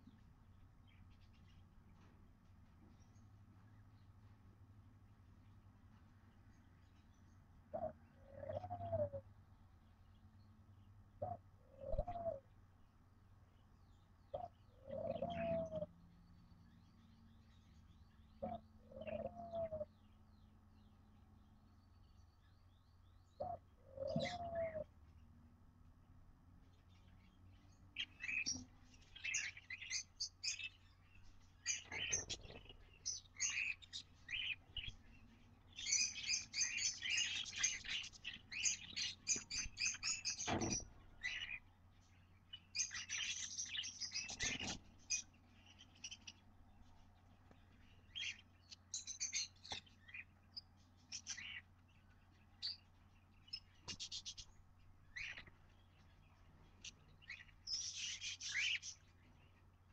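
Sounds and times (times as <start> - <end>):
baby birds chirping begging calls: 14.3 - 15.9, 17.2 - 20.2, 23.4 - 25.0, 26.8 - 46.5, 47.4 - 59.8.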